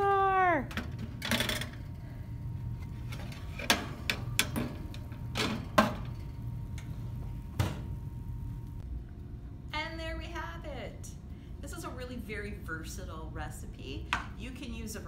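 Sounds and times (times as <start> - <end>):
oven door shutting: 7.4 - 8.0.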